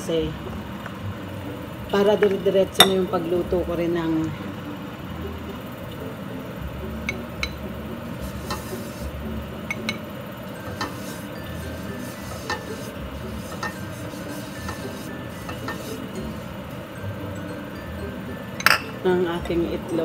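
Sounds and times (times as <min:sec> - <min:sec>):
steady low hum: 0:00.0 - 0:20.0
batter stirred in a bowl: 0:08.2 - 0:10.0, 0:10.6 - 0:16.6
utensil clicking on bowl: 0:12.2 - 0:12.9.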